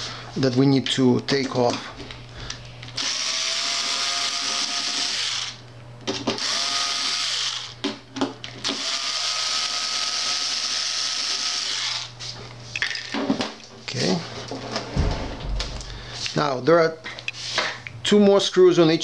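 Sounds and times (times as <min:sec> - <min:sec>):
electric screwdriver motor whining: 0:03.0 - 0:05.6, 0:06.3 - 0:07.8, 0:08.6 - 0:12.1.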